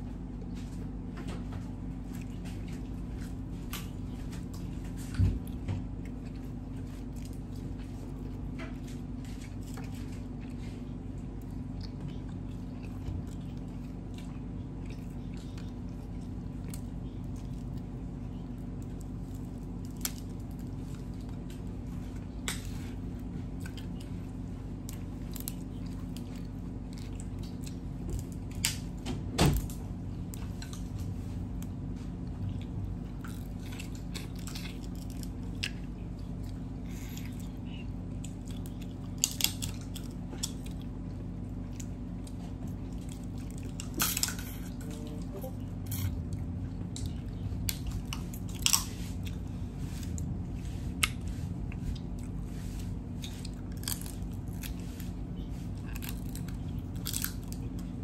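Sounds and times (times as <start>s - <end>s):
steady low hum: 0.0s - 58.0s
wet chewing: 1.6s - 29.0s, 30.1s - 58.0s
crab shells cracking: 53.7s - 54.8s, 55.8s - 57.9s.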